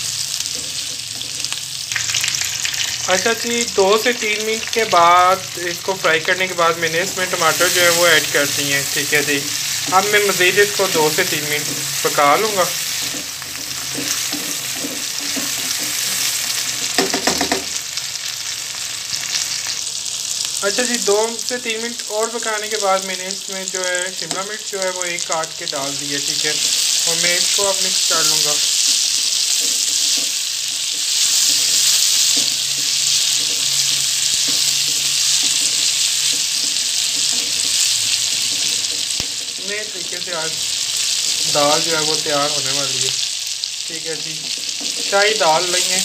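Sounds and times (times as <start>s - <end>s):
onion and tomato sizzling in oil: 0.0s - 46.0s
spatula scraping pan: 6.7s - 17.8s, 26.7s - 42.0s.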